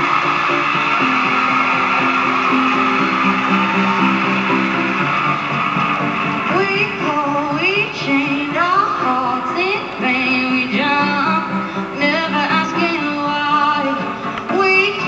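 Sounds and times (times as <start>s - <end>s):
woman singing: 6.5s - 15.0s.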